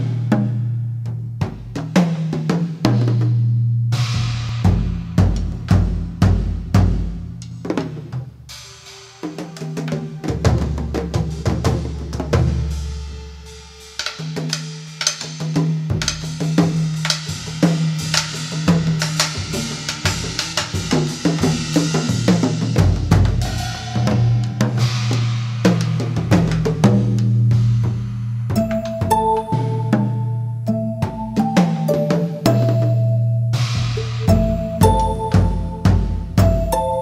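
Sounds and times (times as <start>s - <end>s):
drum kit beat: 0.0s - 37.0s
low bass notes: 27.2s - 37.0s.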